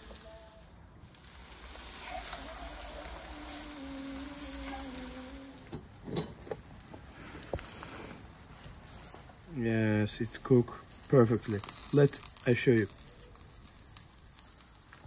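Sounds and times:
wavering buzz: 0:00.0 - 0:06.4
faint hiss: 0:00.0 - 0:15.0.

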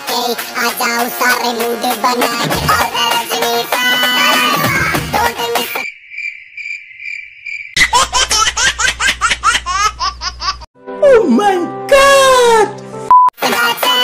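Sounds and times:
cricket chirping: 0:05.8 - 0:07.8.

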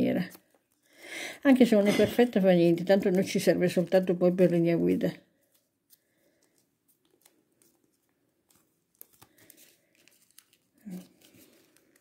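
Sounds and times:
paper crinkling and rustling: 0:01.5 - 0:12.0
soft paper clicks: 0:05.3 - 0:12.0.

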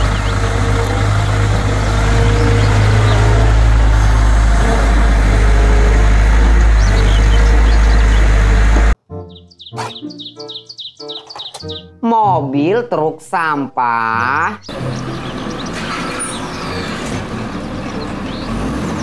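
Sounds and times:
excavator diesel engine running: 0:00.0 - 0:09.0, 0:14.1 - 0:19.0
music with bird-like chirps: 0:00.0 - 0:19.0.

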